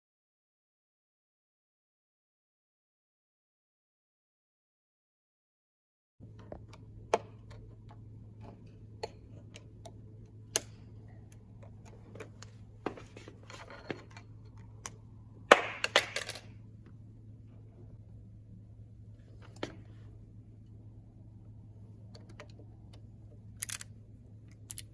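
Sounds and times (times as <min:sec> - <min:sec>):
steady low hum: 0:06.2 - 0:24.9
plastic clicks and scraping: 0:22.1 - 0:23.9.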